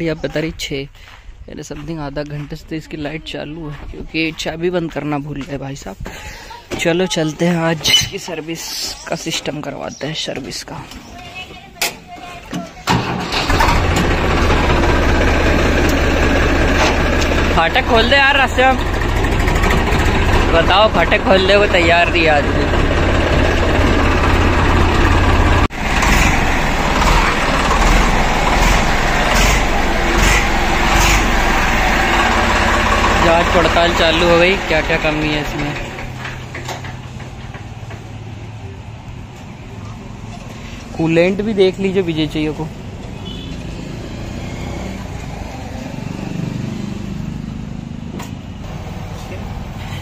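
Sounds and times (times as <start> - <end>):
tractor diesel engine droning: 12.8 - 38.9, 40.2 - 50.0.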